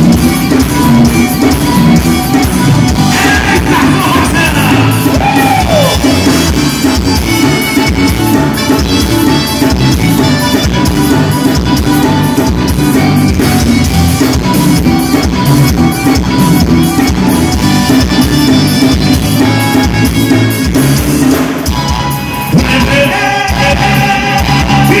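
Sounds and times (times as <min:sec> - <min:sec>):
accordion: 0:00.0 - 0:25.0
electric bass: 0:00.0 - 0:25.0
man singing into a microphone: 0:03.1 - 0:06.2, 0:22.5 - 0:25.0.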